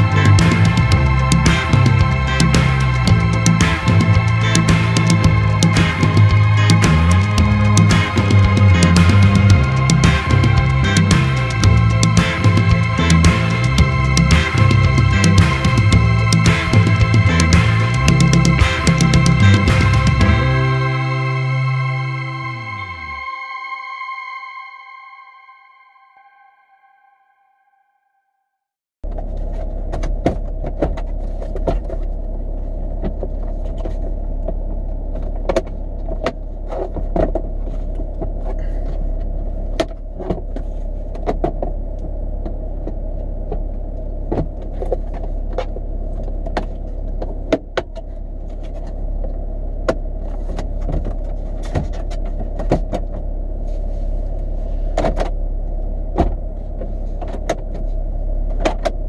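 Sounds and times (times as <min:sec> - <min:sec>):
car interior hum: 0:00.0 - 0:23.3.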